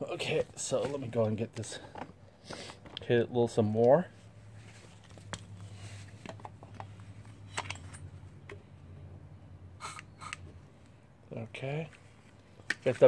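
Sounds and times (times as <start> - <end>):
aerosol can spraying: 9.8 - 10.5.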